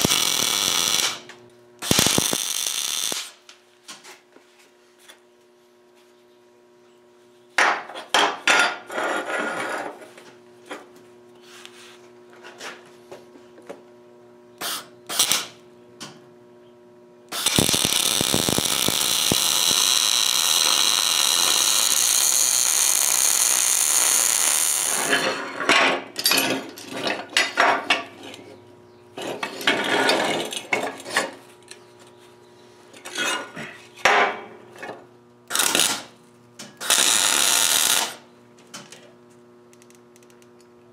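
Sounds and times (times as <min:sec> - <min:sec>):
welder arc crackling and hissing: 0:00.0 - 0:03.6, 0:14.6 - 0:15.6, 0:17.3 - 0:25.2, 0:35.5 - 0:36.2, 0:36.8 - 0:38.3.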